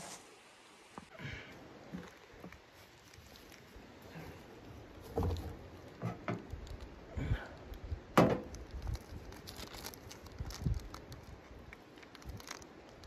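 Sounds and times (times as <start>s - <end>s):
footsteps on dry leaves: 2.0s - 5.1s.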